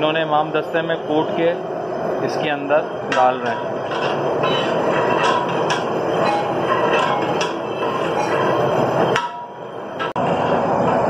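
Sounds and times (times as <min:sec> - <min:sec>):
steady rushing noise: 0:00.0 - 0:11.0
metal stirrer scraping a pot: 0:03.1 - 0:09.2.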